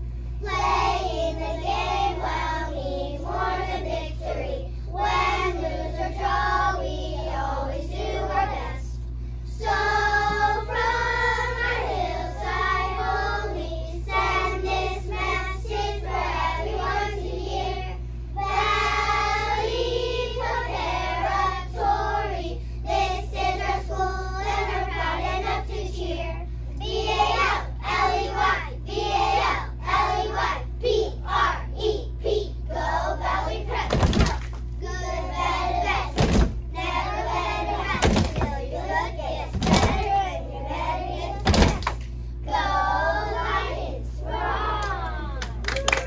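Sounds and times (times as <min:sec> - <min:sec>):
low steady hum: 0:00.0 - 0:46.0.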